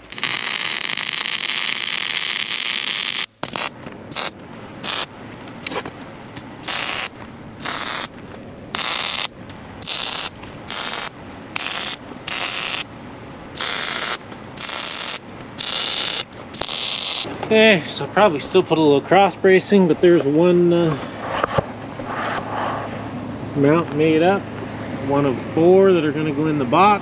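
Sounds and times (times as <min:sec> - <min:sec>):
welding arc crackling: 0:00.0 - 0:12.9, 0:13.5 - 0:17.3.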